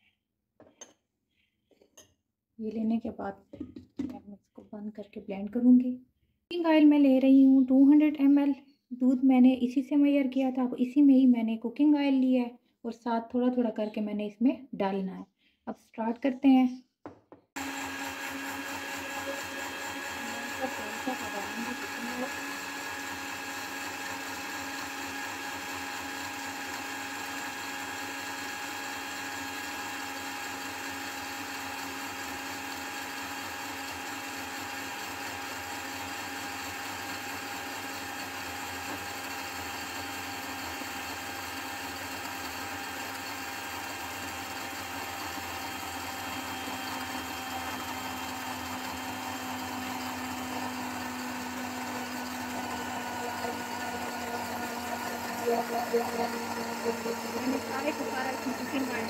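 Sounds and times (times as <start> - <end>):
electric blender running: 17.6 - 59.0.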